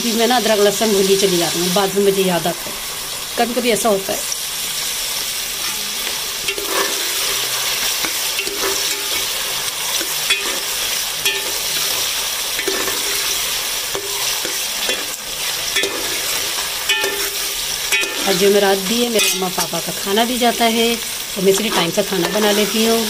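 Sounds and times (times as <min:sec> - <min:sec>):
onions sizzling in hot oil: 0:00.0 - 0:23.0
steel spoon scraping a pot: 0:05.6 - 0:18.5.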